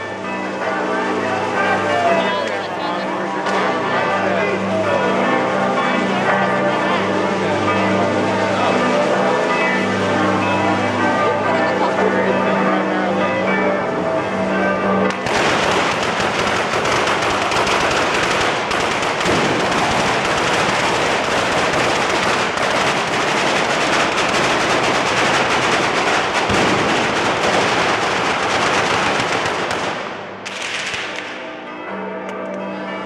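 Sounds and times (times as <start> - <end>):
church bells ringing: 0.0 - 33.0
firecrackers rattling: 15.1 - 31.5.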